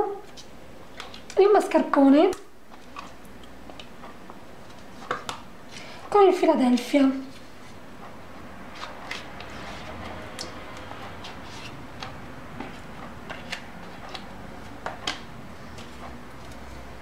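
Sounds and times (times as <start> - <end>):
spatula scraping tub and bowl: 8.7 - 14.1.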